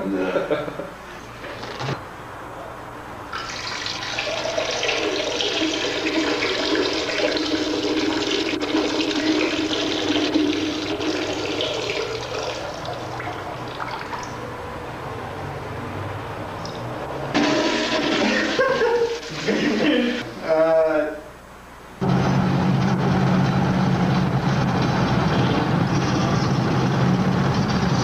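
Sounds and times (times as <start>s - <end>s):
urine splashing into toilet water: 3.4s - 14.4s.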